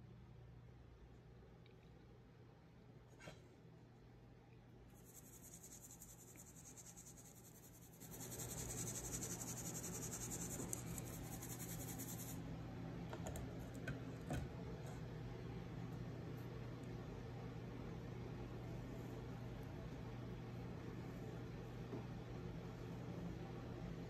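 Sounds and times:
low steady hum: 0:00.0 - 0:24.0
flour shaken through sieve: 0:05.0 - 0:12.4.

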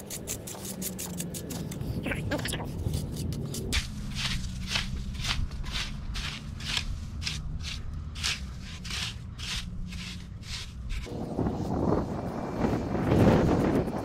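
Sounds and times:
metal rake scraping wet sand: 0:03.7 - 0:11.1.

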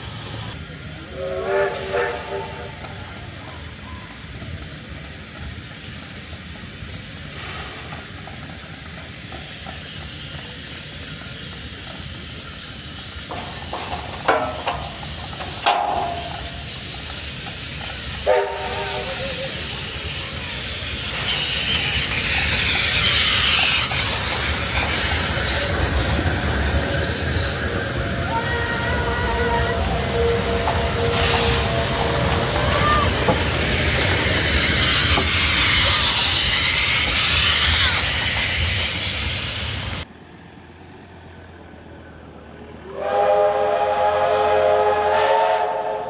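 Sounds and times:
steam hissing: 0:00.0 - 0:40.1, 0:42.9 - 0:46.0
locomotive whistle toot: 0:01.1 - 0:03.0, 0:18.2 - 0:19.6, 0:28.1 - 0:33.5, 0:42.9 - 0:46.0.

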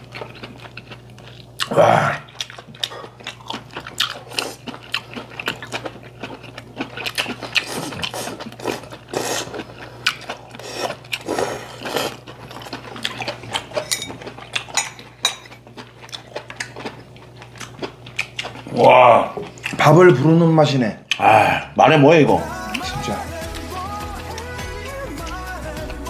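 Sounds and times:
wet chewing smacks: 0:00.0 - 0:14.8
man slurping food: 0:07.6 - 0:09.6, 0:10.6 - 0:12.2.

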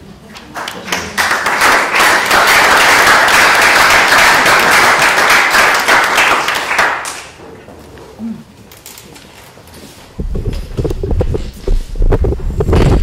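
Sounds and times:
audience applause: 0:00.6 - 0:07.4.

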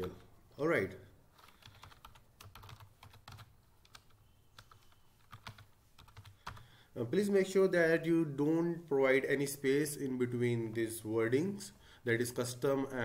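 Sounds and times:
keyboard keys clicking: 0:01.4 - 0:06.6.

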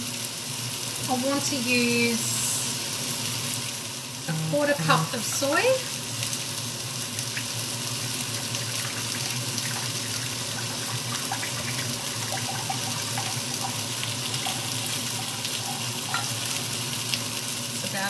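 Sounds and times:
chicken sizzling in a frying pan: 0:00.0 - 0:18.0.

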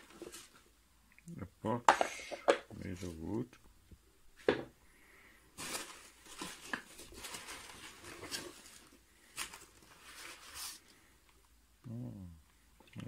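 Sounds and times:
foam packing peanuts rustling: 0:05.5 - 0:11.0.

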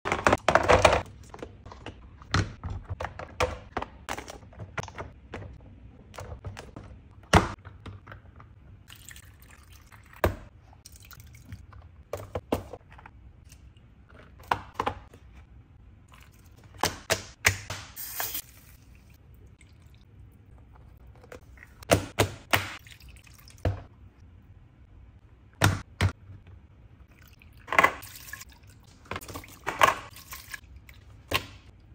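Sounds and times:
ice cube trays tapping and knocking: 0:00.0 - 0:08.6
liquid pouring and splashing: 0:08.8 - 0:11.7, 0:27.1 - 0:31.1.

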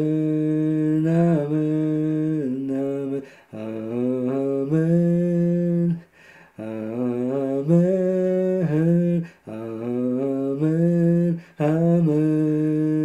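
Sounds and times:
man singing long notes: 0:00.0 - 0:13.0.

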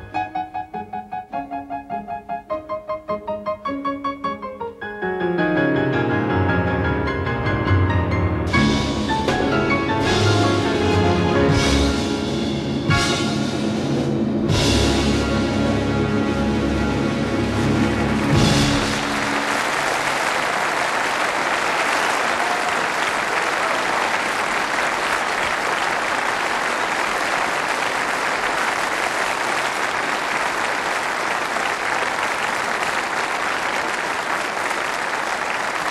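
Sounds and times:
piano and orchestra chord: 0:00.0 - 0:19.7
audience applause: 0:17.6 - 0:35.9.

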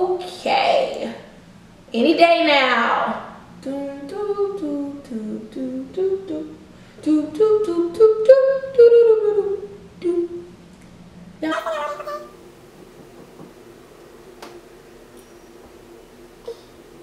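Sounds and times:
woman humming a tune: 0:03.6 - 0:10.5.

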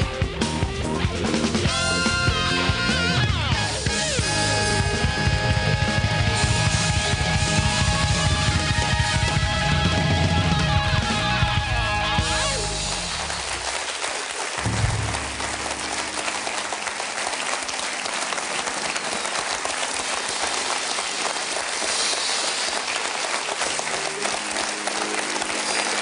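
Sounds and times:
band's low note: 0:00.0 - 0:13.6, 0:14.6 - 0:17.7
audience applauding: 0:01.4 - 0:26.0.

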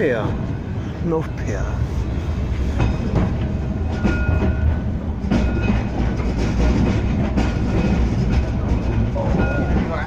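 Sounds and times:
tram rumbling along track: 0:00.0 - 0:10.0
wheels clacking over rail joints: 0:02.4 - 0:10.0.

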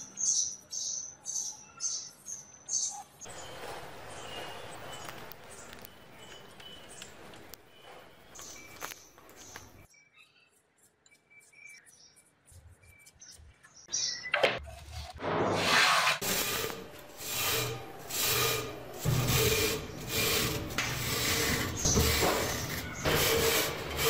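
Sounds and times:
wire brush scrubbing rust off metal: 0:15.7 - 0:24.0.

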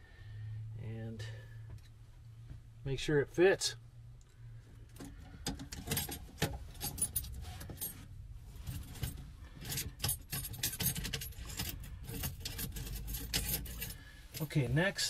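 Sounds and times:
small metal parts clinking: 0:05.0 - 0:08.0, 0:08.7 - 0:14.5.

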